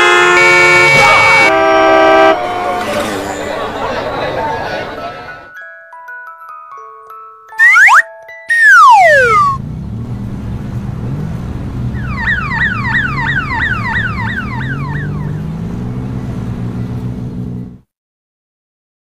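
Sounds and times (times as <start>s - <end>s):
road traffic engines: 0.0s - 5.5s, 7.6s - 17.9s
electronic alarm falling tones: 7.6s - 9.6s.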